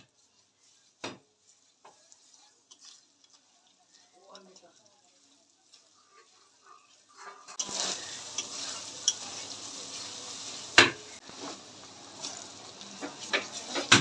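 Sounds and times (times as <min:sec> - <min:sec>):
onions sizzling in hot oil: 0:00.0 - 0:14.0
metal spatula scraping pan: 0:05.8 - 0:10.1.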